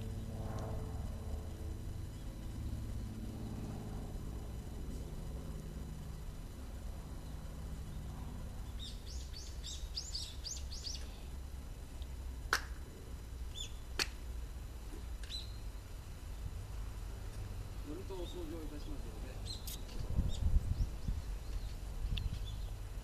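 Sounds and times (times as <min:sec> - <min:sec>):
low rumble: 0:00.0 - 0:09.1
small bird chirping: 0:07.2 - 0:11.3, 0:13.5 - 0:13.8, 0:15.2 - 0:15.7, 0:17.8 - 0:22.9
sharp claps: 0:12.5 - 0:12.8, 0:13.9 - 0:14.2.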